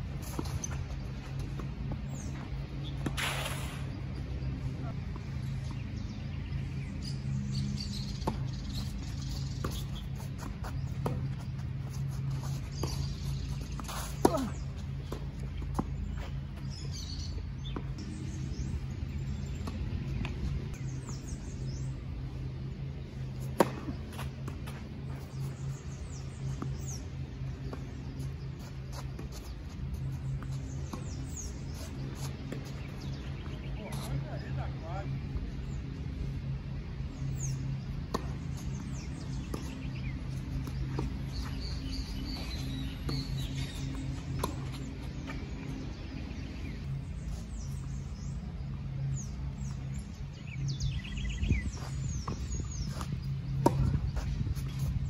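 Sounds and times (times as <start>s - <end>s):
steady low hum: 0.0s - 55.0s
birds chirping: 0.1s - 55.0s
tennis balls struck by rackets: 0.2s - 4.5s, 23.2s - 28.0s, 37.8s - 46.0s, 51.6s - 54.9s
tennis balls struck with rackets: 23.5s - 24.9s, 51.6s - 54.8s.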